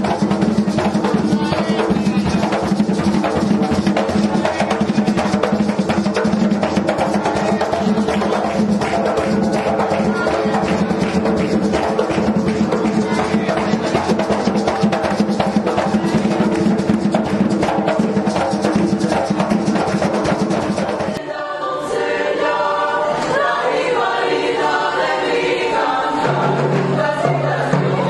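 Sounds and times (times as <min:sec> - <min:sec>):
group of voices singing: 0:00.0 - 0:17.4, 0:18.6 - 0:28.0
fast hand drumming on barrel drums: 0:00.0 - 0:21.2.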